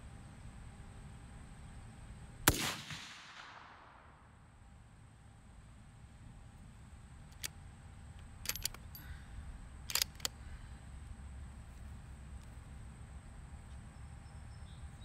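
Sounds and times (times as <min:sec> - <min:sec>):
rifle bolt metallic clicks: 0:07.3 - 0:07.6, 0:08.4 - 0:09.0, 0:09.9 - 0:10.3.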